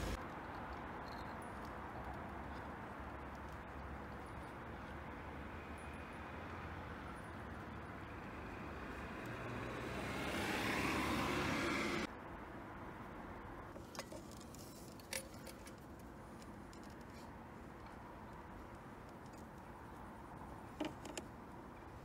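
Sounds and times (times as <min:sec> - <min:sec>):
car going by: 0:05.2 - 0:12.1.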